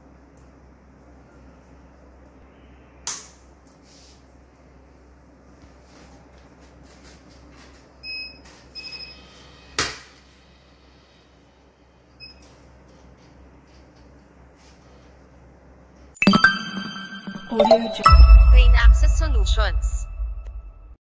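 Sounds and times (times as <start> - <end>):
machine beeps: 8.0 - 9.3, 16.2 - 20.8.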